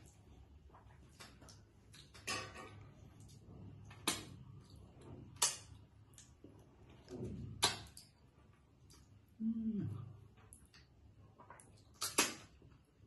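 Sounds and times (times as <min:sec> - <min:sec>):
lip smacks and mouth clicks: 0:05.4 - 0:06.7, 0:10.4 - 0:12.6.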